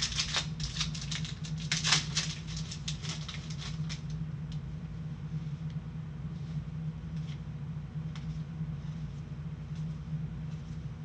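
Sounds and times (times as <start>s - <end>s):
foil wrapper crinkling and tearing: 0.0s - 4.2s
steady low hum: 0.0s - 11.0s.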